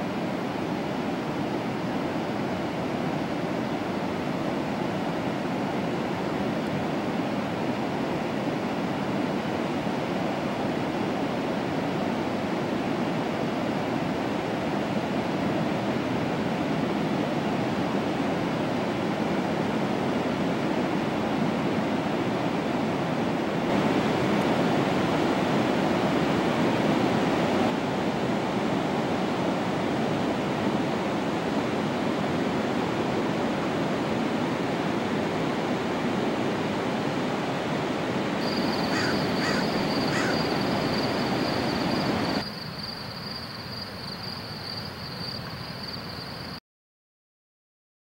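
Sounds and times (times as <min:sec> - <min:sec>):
waves breaking on a beach: 0:00.0 - 0:42.4
bird calling: 0:38.4 - 0:42.4.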